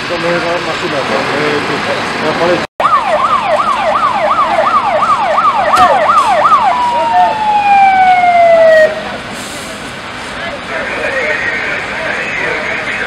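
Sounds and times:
fire engine siren yelping: 0:02.8 - 0:13.0.

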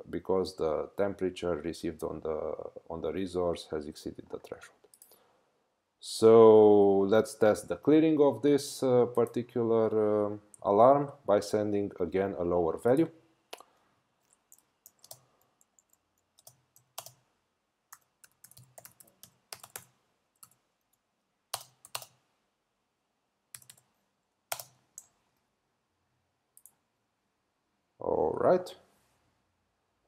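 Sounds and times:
keyboard typing: 0:14.2 - 0:17.3, 0:17.9 - 0:22.2, 0:23.5 - 0:23.9, 0:24.5 - 0:25.2, 0:26.6 - 0:26.8.

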